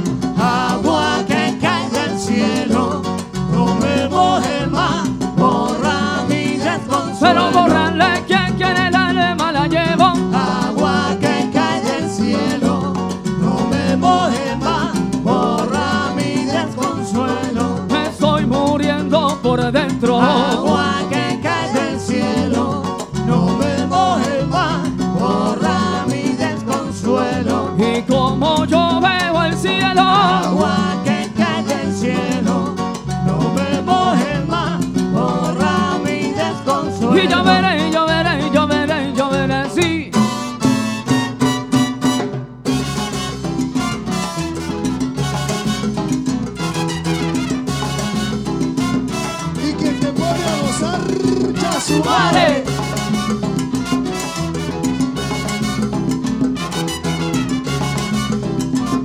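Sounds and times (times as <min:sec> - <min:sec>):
congas: 0:00.0 - 0:59.0
salsa band playing: 0:00.0 - 0:59.0
stepping bass line: 0:07.2 - 0:10.6, 0:50.5 - 0:53.3.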